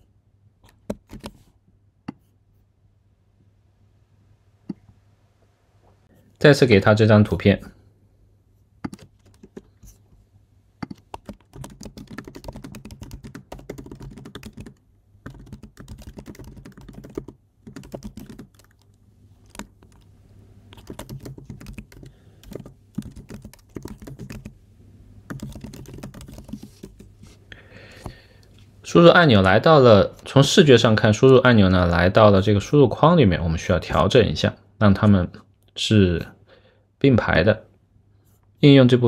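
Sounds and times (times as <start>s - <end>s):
typing on computer keyboard: 0.6s - 1.4s, 8.8s - 9.7s, 10.8s - 20.1s, 20.7s - 24.5s, 25.3s - 27.1s.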